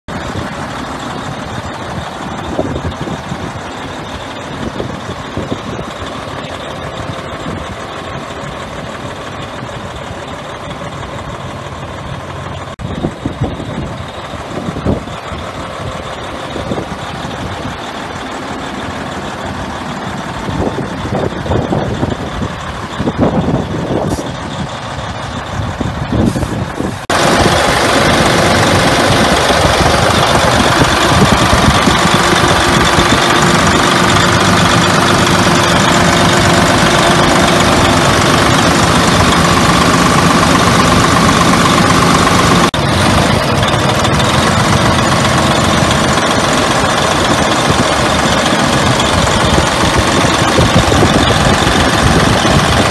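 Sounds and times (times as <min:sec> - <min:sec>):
diesel engine idling: 0:00.0 - 0:52.9.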